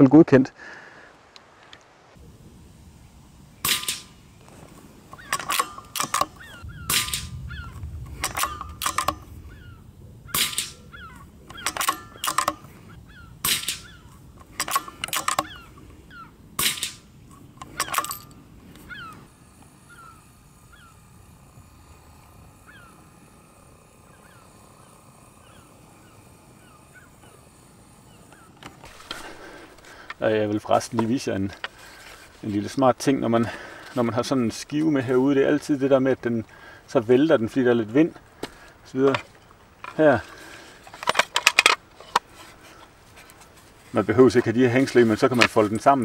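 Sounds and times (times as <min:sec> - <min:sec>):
small birds chirping: 0:02.2 - 0:38.9
suppressed rifle shots: 0:03.6 - 0:04.2, 0:05.2 - 0:18.2, 0:28.8 - 0:30.2.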